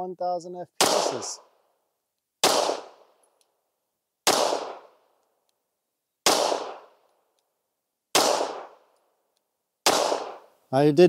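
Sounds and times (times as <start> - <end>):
pistol shots: 0.8 - 1.5, 2.4 - 3.2, 4.2 - 5.2, 6.2 - 7.1, 8.1 - 8.9, 9.8 - 10.6.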